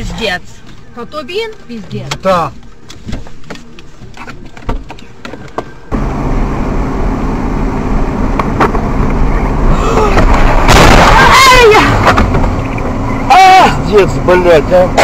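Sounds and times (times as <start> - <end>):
car cabin road and engine noise: 0.0 - 15.0
tyres on wet road: 5.9 - 15.0.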